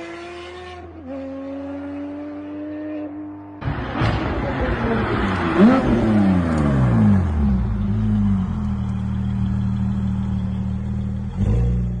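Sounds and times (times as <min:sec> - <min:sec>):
car engine idling: 0:03.6 - 0:12.0.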